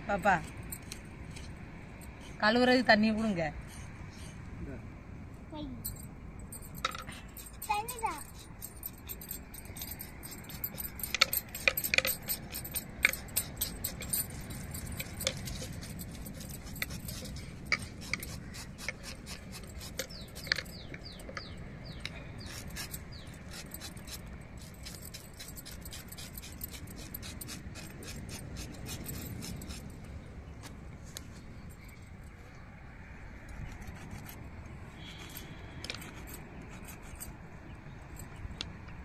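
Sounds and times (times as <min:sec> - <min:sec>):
bangles clinking: 0:05.8 - 0:30.1, 0:33.4 - 0:38.8
knife scraping fish: 0:09.9 - 0:20.7.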